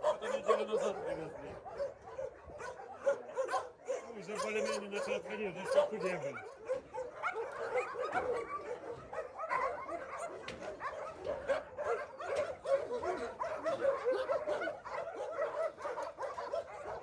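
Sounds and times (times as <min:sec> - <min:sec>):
dogs barking: 0:00.0 - 0:17.0.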